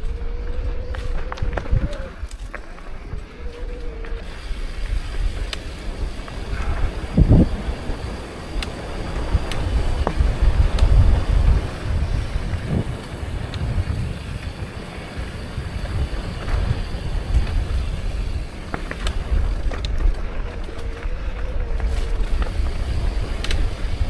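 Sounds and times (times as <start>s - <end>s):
bike clicking and rattling: 0.0s - 24.0s
bike tyres rumbling on dirt trail: 0.0s - 24.0s
wind buffeting microphone: 0.0s - 24.0s.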